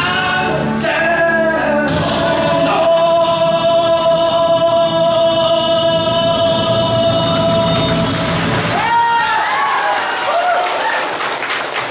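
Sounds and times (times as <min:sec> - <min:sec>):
man singing long note: 0:00.0 - 0:08.5
karaoke backing track: 0:00.0 - 0:09.9
applause: 0:07.2 - 0:11.9.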